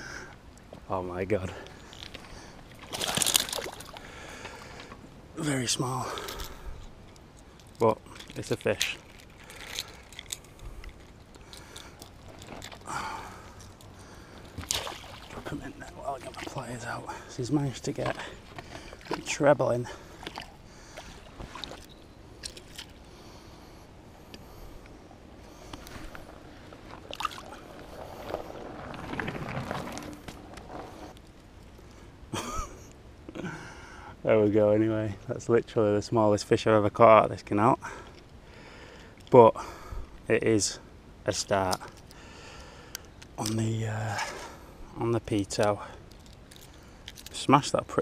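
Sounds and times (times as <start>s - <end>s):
faint rustles and clicks: 0.4s - 5.0s, 6.0s - 33.0s, 41.3s - 47.8s
small water splashes: 2.7s - 4.8s, 14.4s - 17.2s, 18.0s - 23.0s, 27.0s - 27.9s
handling noises: 6.1s - 23.0s, 25.5s - 31.7s.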